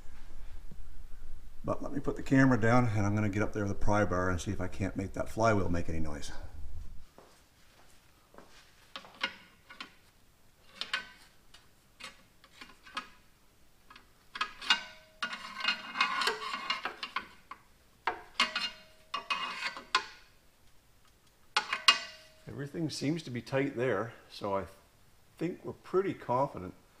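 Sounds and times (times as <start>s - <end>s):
metal grinding scrape: 12.0s - 13.1s, 14.4s - 17.5s, 18.1s - 20.2s
pry bar clinking on metal: 14.3s - 17.4s, 18.1s - 20.2s, 21.6s - 22.5s.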